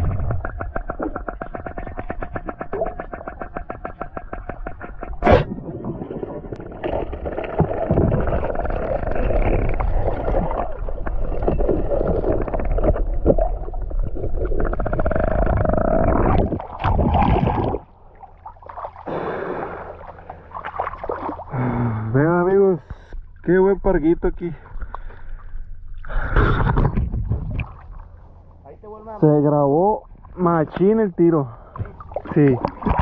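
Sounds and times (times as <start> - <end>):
muffled underwater bubbling: 0.0 - 22.2.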